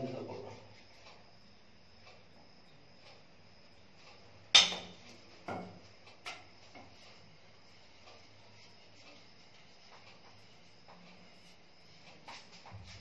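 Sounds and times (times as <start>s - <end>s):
wooden stick clacking: 4.6s - 4.9s.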